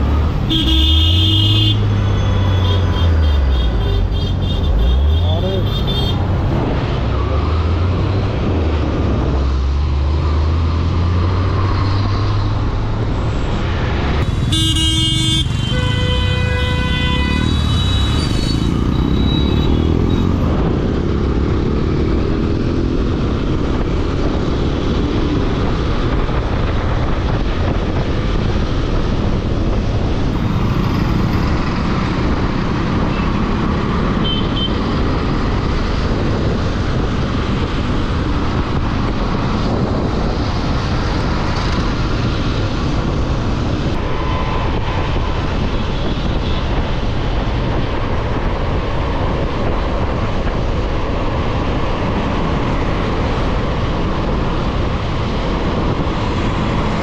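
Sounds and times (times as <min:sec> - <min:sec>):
road traffic rumbling: 0:00.0 - 0:57.0
vehicle horn: 0:00.5 - 0:06.3, 0:14.3 - 0:18.6, 0:34.2 - 0:34.8.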